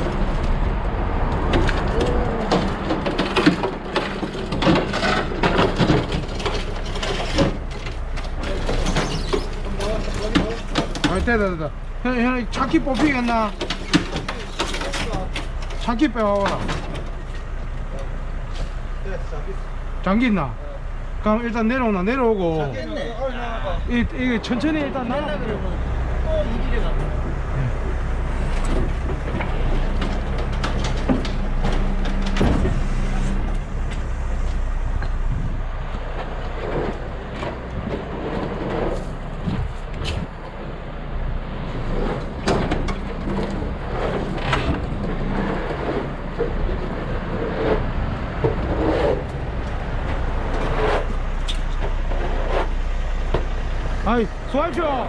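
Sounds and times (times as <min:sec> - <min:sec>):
knocks and clanks: 0:00.0 - 0:11.7, 0:12.5 - 0:18.0, 0:26.9 - 0:34.1, 0:35.0 - 0:40.8, 0:41.5 - 0:55.0
truck diesel engine running: 0:00.0 - 0:55.0.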